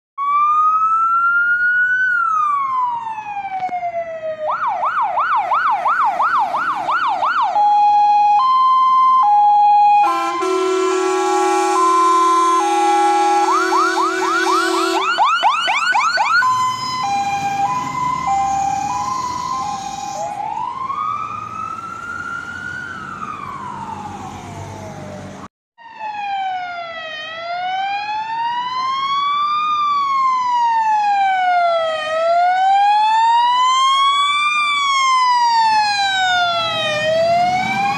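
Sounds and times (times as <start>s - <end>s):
fire engine sirens: 0.2s - 37.9s
long steady horn blast: 10.0s - 15.3s.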